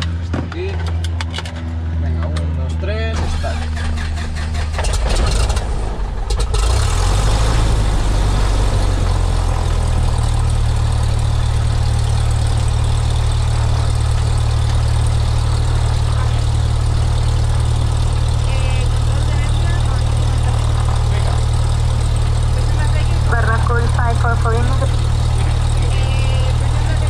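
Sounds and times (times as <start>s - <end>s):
aircraft engine starting and idling: 0.0s - 27.0s.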